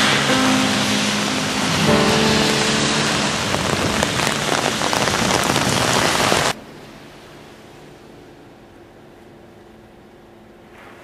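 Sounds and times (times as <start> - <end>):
heavy rain on pavement: 0.0 - 6.6.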